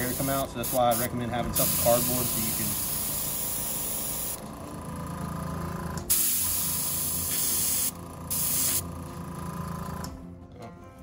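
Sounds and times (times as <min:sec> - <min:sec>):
airbrush hissing: 0:00.0 - 0:04.4, 0:06.1 - 0:08.8.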